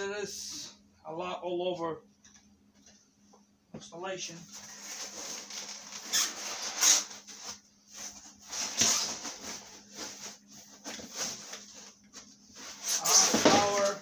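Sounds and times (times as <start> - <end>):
plastic wrap rustling: 4.4 - 14.0.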